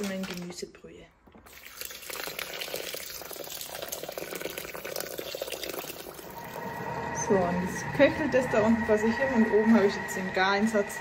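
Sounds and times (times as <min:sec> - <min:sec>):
liquid pouring into a bowl: 0:01.4 - 0:06.7.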